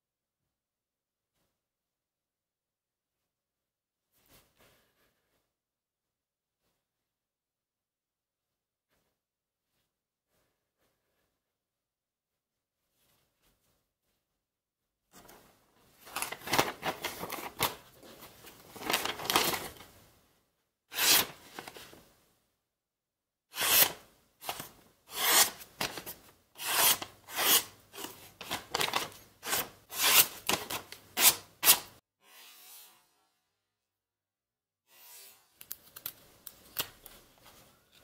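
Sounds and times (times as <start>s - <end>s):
knife cutting paper: 20.9s - 21.4s, 23.5s - 32.4s.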